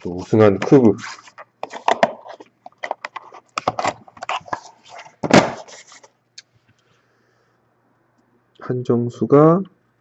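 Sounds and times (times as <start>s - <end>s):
card box rustling and scraping: 0.0s - 6.1s.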